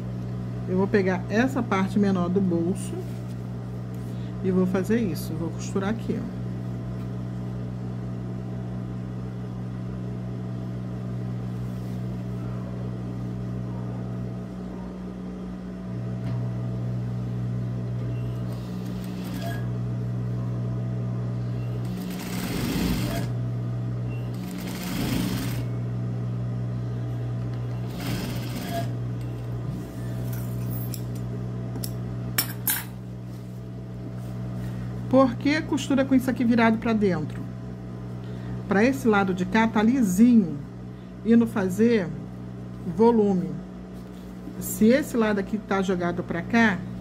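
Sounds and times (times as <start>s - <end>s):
sewing machine stitching: 18.5s - 19.6s, 21.8s - 23.4s, 24.3s - 25.7s, 27.8s - 29.0s.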